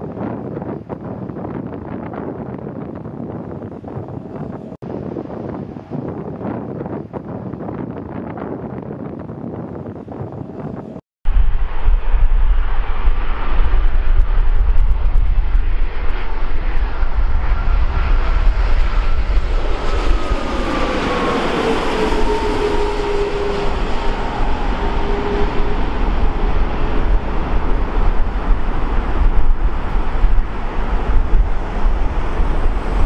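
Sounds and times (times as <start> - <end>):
wind rumble on microphone: 0.0 - 33.0
jetliner passing low overhead: 9.9 - 33.0.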